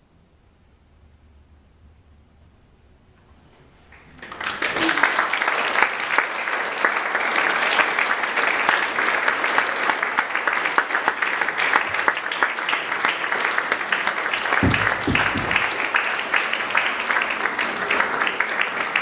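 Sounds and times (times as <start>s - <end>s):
audience applauding: 3.9s - 19.0s
low thumps: 14.6s - 15.9s.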